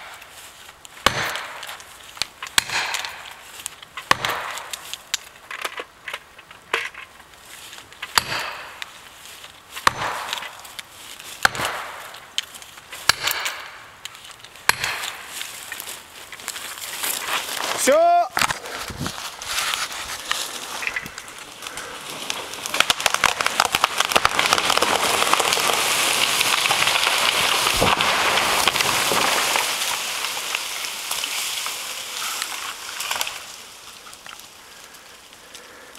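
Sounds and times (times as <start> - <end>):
leaves rustling: 0.0 - 35.9
wood cracking and snapping: 0.0 - 35.9
falling twigs pattering: 12.0 - 35.8.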